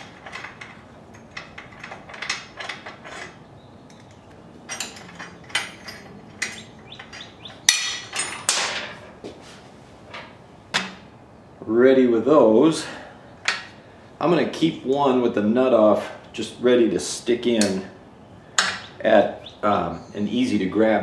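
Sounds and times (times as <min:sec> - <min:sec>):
metal bolts clicking and clinking: 0:00.0 - 0:09.0, 0:18.6 - 0:19.0.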